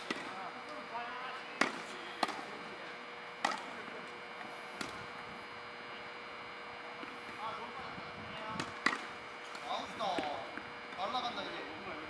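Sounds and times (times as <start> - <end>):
tennis ball popping off racket: 0.0 - 0.3, 3.4 - 3.7, 8.6 - 9.1
tennis ball bouncing on court: 0.0 - 0.4, 1.6 - 2.5, 3.4 - 3.8, 4.8 - 5.0, 8.6 - 9.1, 10.1 - 11.0
faint steady hum: 0.0 - 12.0.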